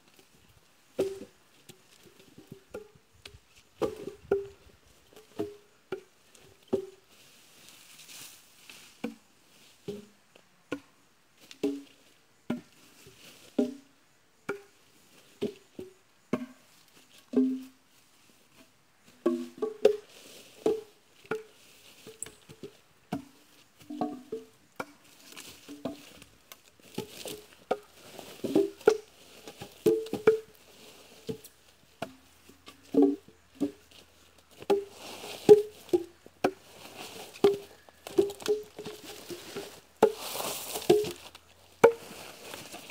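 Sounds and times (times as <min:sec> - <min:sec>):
blade chopping wood: 0:34.6 - 0:34.9, 0:35.5 - 0:36.6, 0:37.3 - 0:42.1.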